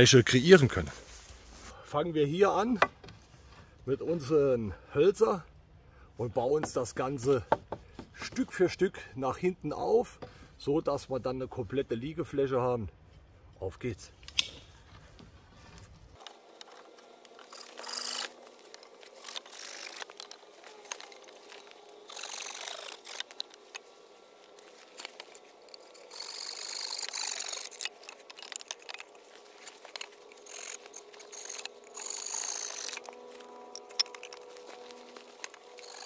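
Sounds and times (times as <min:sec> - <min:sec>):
rustling of dry branches and leaves: 0:00.0 - 0:04.2, 0:14.5 - 0:36.0
wood knocks and clicks: 0:07.5 - 0:08.5.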